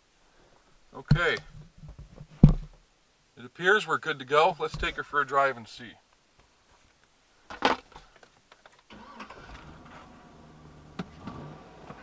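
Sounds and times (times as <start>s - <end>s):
truck engine starting and idling: 8.9s - 12.0s.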